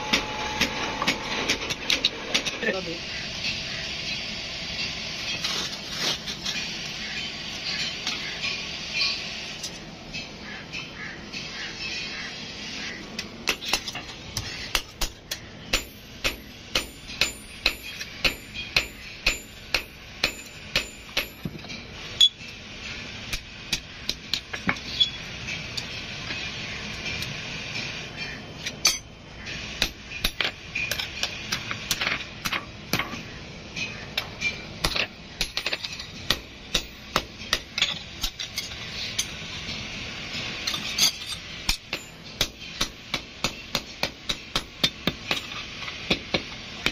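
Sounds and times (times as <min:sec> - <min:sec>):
hammer striking blade on anvil: 0:00.0 - 0:01.8, 0:13.4 - 0:21.6, 0:29.8 - 0:33.2, 0:33.8 - 0:39.4, 0:40.7 - 0:46.9.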